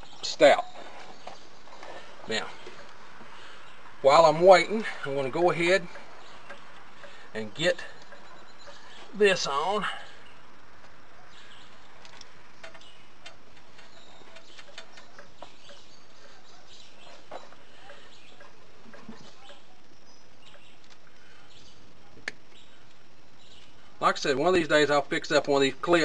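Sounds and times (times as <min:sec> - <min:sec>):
steady background hiss: 0:00.0 - 0:26.0
faint bird chirps: 0:05.6 - 0:24.0
small parts clicking and tapping: 0:05.8 - 0:08.9, 0:11.7 - 0:16.4, 0:20.4 - 0:21.2.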